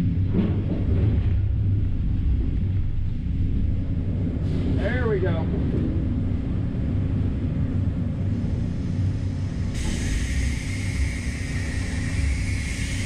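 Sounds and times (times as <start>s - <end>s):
high hiss: 9.0s - 13.0s.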